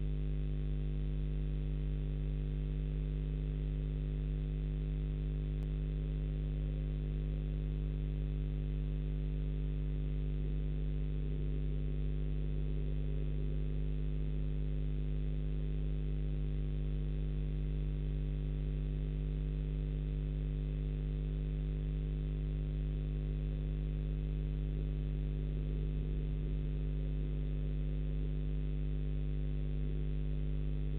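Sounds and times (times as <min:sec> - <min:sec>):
steady electrical hum: 0:00.0 - 0:17.9, 0:21.5 - 0:30.9.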